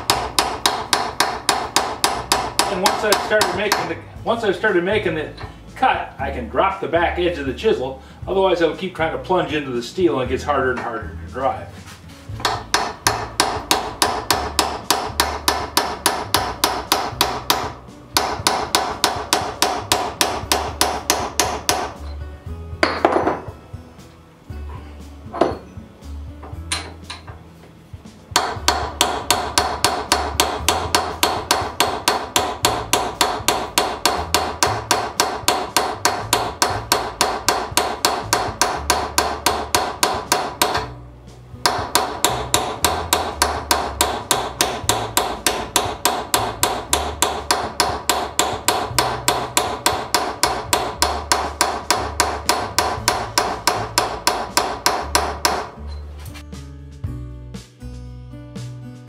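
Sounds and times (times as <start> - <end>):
hammer striking metal chisel: 0.0 - 4.0, 12.3 - 22.2, 22.8 - 23.5, 25.3 - 25.7, 26.4 - 27.4, 28.3 - 41.0, 41.6 - 56.4.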